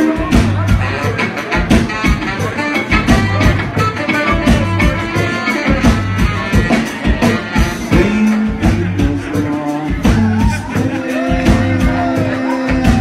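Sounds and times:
saxophones playing: 0.0 - 8.4
drum kit beat: 0.0 - 13.0.

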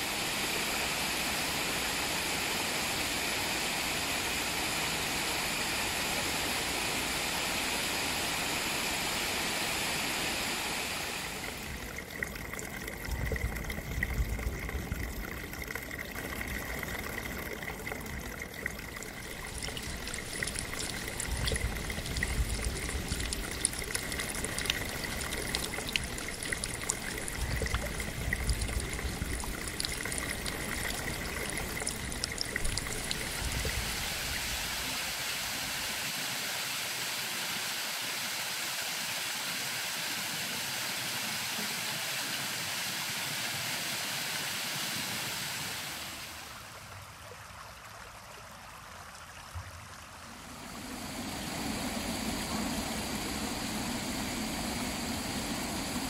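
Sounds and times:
water splashing and trickling: 10.8 - 35.5
water dripping: 11.3 - 34.8.

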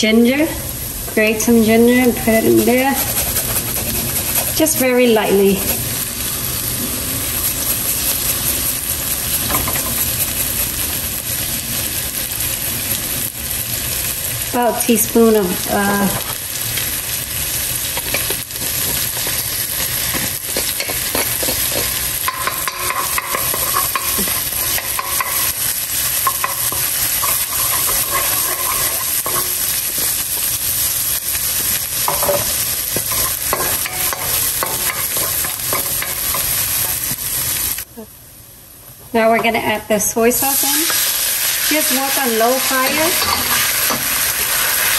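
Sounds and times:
garlic sizzling in hot oil: 0.0 - 37.9, 39.6 - 44.9
wooden spoon scraping a wok: 2.6 - 5.0, 18.1 - 30.6.

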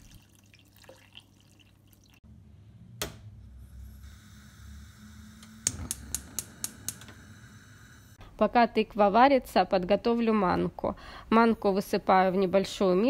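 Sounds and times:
water pouring into saucepan: 0.0 - 2.2
electric hob whine: 2.3 - 8.2.

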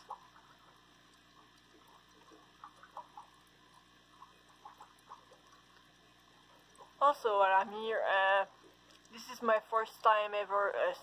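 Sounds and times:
small water pops: 0.0 - 7.0, 8.6 - 9.2
aquarium filter bubbling: 0.0 - 11.0.

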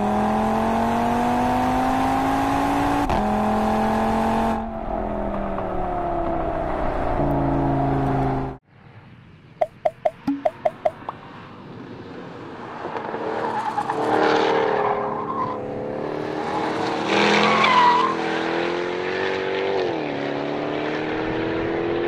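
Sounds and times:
tire squeals: 13.2 - 18.5.

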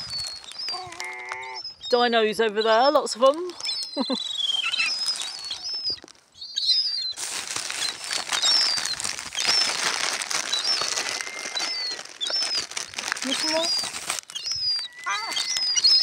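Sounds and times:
young gulls whistling calls: 0.0 - 16.0.

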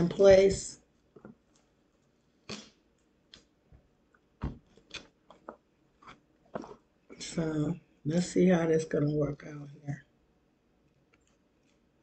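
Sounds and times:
tape rustling and clicking: 1.0 - 6.9.

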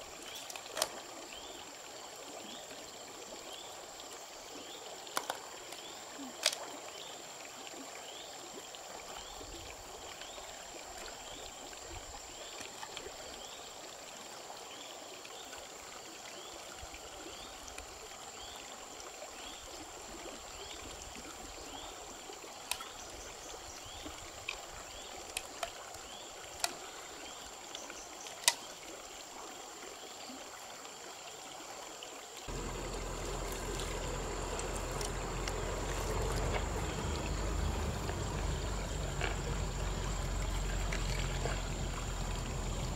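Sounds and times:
stream running over stones: 0.0 - 42.9
low rumble: 32.5 - 42.9.

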